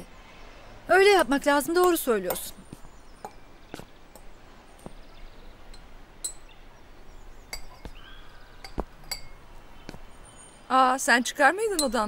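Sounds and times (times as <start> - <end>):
dishes and glassware clinking: 7.5 - 8.0, 8.6 - 9.4.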